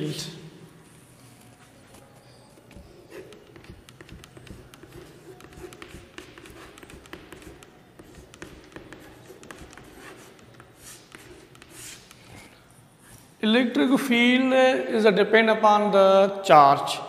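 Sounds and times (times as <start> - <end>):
chalk writing on chalkboard: 1.7 - 13.3.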